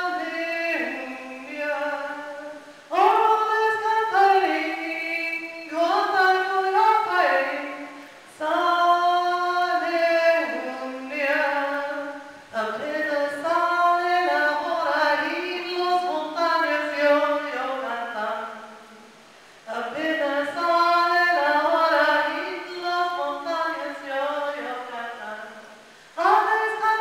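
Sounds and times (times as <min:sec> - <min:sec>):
woman chanting unaccompanied: 0:00.0 - 0:27.0
breaths: 0:07.9 - 0:08.3, 0:19.2 - 0:19.7, 0:25.8 - 0:26.2.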